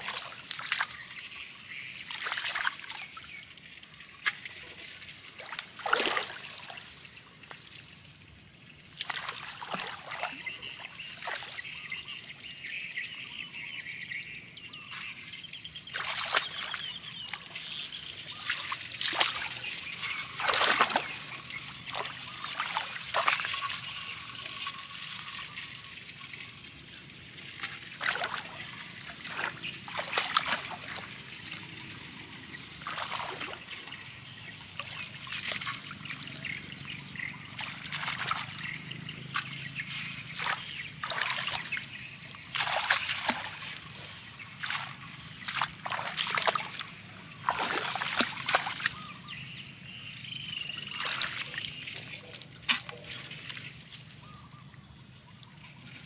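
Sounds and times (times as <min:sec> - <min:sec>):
hands splashing in muddy water: 0:02.1 - 0:03.1, 0:04.2 - 0:07.1, 0:08.9 - 0:11.6, 0:15.9 - 0:25.3, 0:27.6 - 0:32.1, 0:32.8 - 0:33.9, 0:37.5 - 0:49.4, 0:50.7 - 0:54.3.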